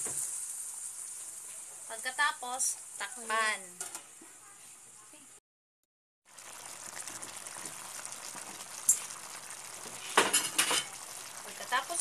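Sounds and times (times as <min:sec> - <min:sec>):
broth bubbling in a wok: 0:00.0 - 0:03.6, 0:06.2 - 0:12.0.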